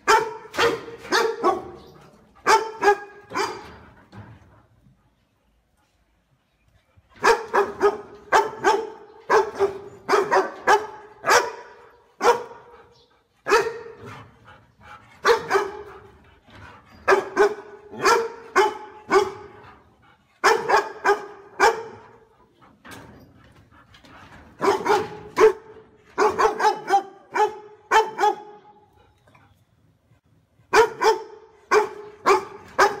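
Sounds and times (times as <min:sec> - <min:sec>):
large dog barking: 0:00.0 - 0:03.8, 0:07.2 - 0:14.4, 0:15.2 - 0:16.2, 0:17.0 - 0:19.8, 0:20.4 - 0:22.3, 0:24.6 - 0:28.9, 0:30.7 - 0:33.0.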